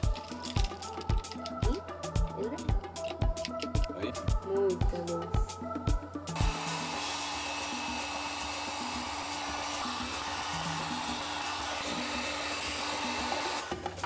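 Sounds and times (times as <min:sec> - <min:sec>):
faint background music: 0:00.0 - 0:14.0
electric blower rushing air: 0:06.4 - 0:14.0.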